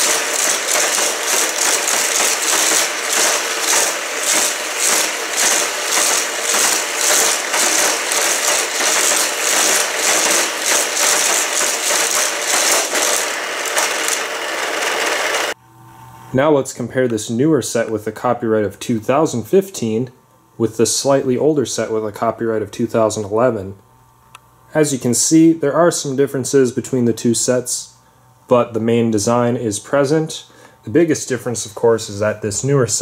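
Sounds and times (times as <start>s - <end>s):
powered wheel whirring: 0.0s - 15.6s
toy cars rattling on plastic track: 0.0s - 15.6s.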